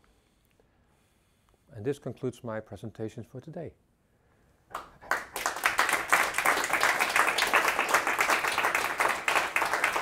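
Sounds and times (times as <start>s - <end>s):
audience applause: 4.7s - 10.0s.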